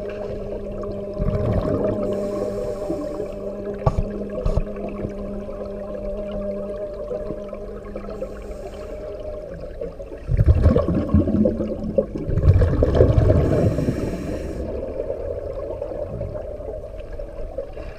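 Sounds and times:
steady low hum: 0.0s - 10.3s
regulator exhaust bubbles gurgling: 9.6s - 13.9s.

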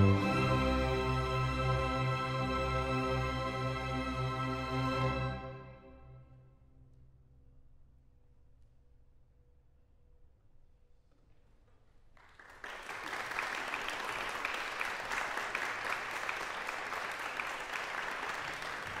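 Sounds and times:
audience applause: 12.2s - 19.0s.

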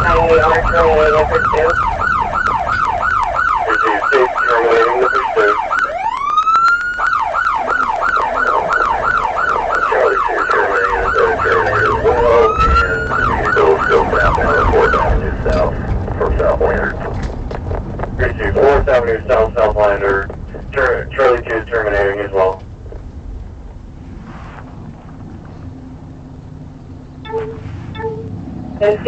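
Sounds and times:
police siren yelp: 0.0s - 17.0s, 27.3s - 29.0s
siren rising wail: 0.0s - 17.1s, 27.2s - 29.0s.

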